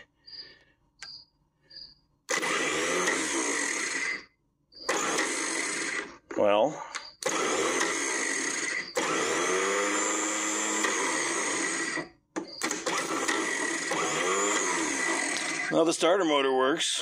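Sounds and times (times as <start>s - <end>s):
starter motor whining: 2.3s - 6.2s, 7.0s - 16.4s.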